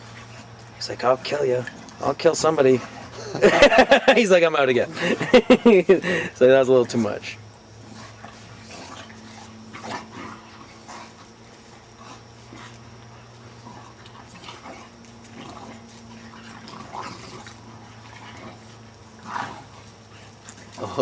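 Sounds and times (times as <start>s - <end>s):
dogs vocalising while play-fighting: 0.0s - 0.8s, 2.6s - 3.8s, 7.6s - 20.9s
steady low hum: 0.0s - 21.0s.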